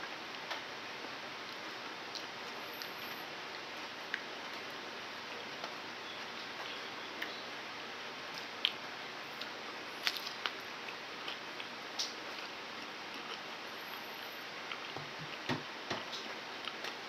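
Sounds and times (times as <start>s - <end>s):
banana peeling and chewing clicks: 8.4s - 13.6s.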